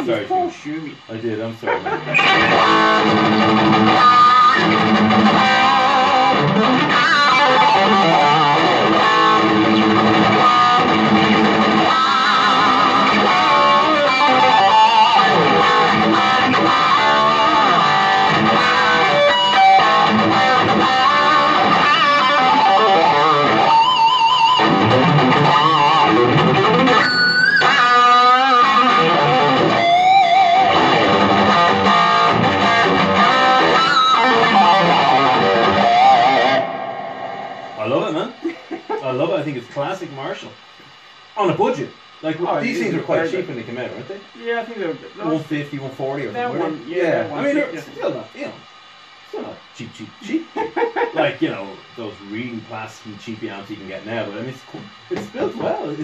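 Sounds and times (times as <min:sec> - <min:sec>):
electric guitars jamming: 0:01.0 - 0:39.4, 0:54.7 - 0:56.0.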